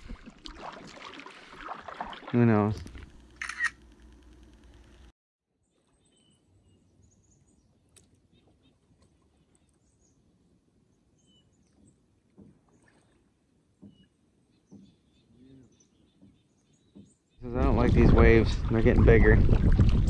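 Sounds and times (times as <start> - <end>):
soft splashes or knocks: 0.0 - 3.0
water sloshing against a hull: 0.0 - 3.1, 11.5 - 15.2, 15.9 - 20.0.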